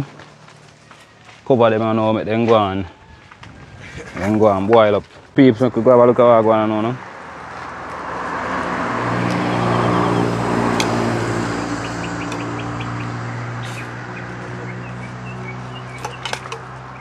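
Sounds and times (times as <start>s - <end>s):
vehicle engine hum: 5.9s - 17.0s
high bird chirps: 9.2s - 17.0s.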